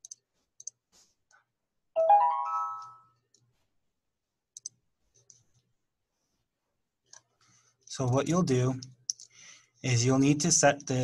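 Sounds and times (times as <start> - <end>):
rising computer chime: 2.0 - 3.2
mouse clicks: 4.6 - 5.4.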